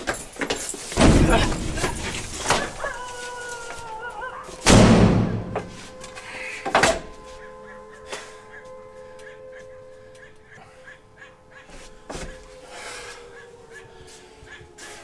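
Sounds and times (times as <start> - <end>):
heavy bangs and thuds: 1.0 - 2.8, 4.6 - 5.7
screen door banging and slamming: 1.0 - 2.8, 4.6 - 5.7.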